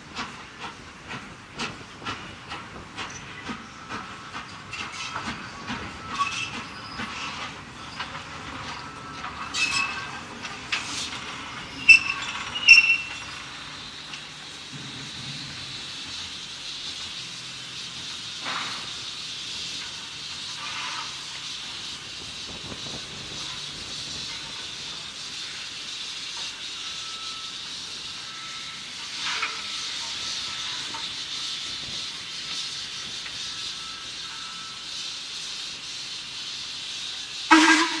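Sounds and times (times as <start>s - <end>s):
steam hissing: 0.0s - 38.0s.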